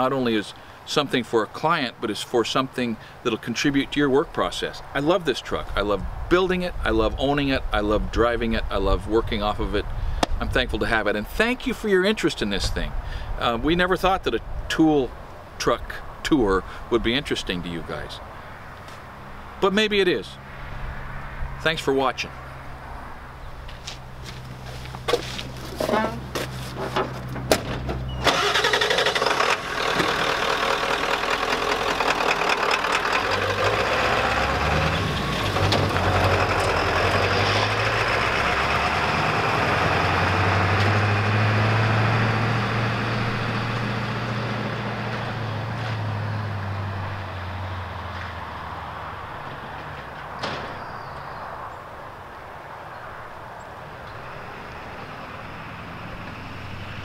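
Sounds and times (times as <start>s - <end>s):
truck pulling away: 24.2s - 51.4s, 53.2s - 57.0s
diesel truck engine starting: 25.1s - 51.3s, 53.9s - 57.0s.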